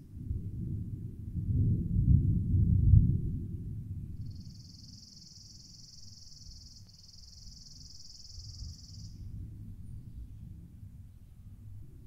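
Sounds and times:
faint low rumble: 0:00.0 - 0:12.0
insect high-pitched trill: 0:04.2 - 0:09.3.

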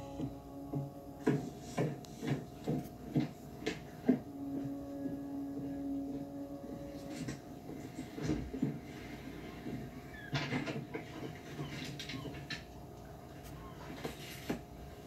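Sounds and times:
steady low tone: 0:00.0 - 0:10.0.

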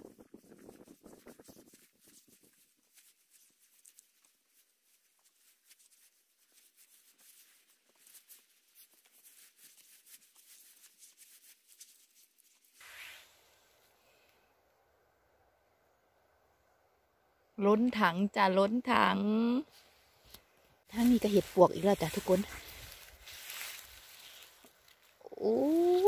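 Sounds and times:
mushrooms rustling in plastic bucket: 0:01.8 - 0:12.8, 0:20.9 - 0:26.0.

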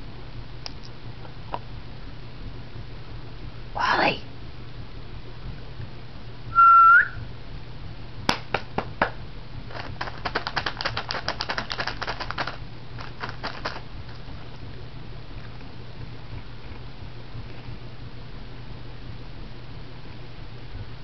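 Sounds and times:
short rising whistle: 0:06.5 - 0:07.3
cat crunching cracker: 0:09.7 - 0:14.3.

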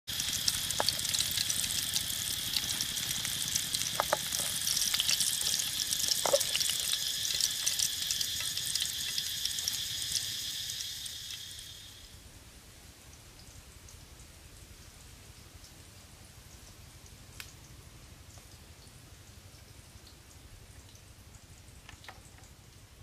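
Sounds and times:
bread sizzling in hot oil: 0:00.1 - 0:12.2.

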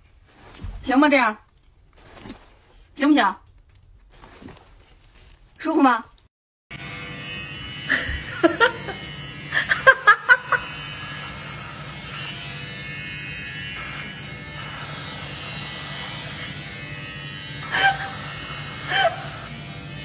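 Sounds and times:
electric device buzzing: 0:06.7 - 0:20.0.

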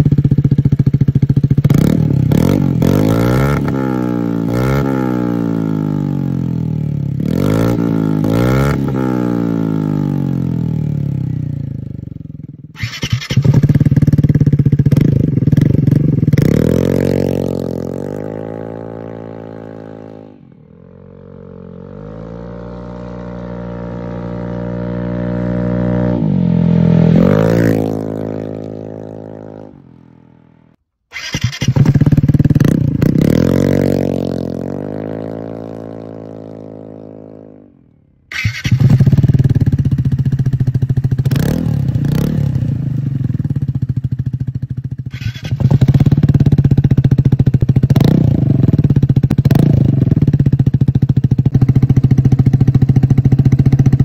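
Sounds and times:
scooter engine passing by: 0:16.5 - 0:30.6.

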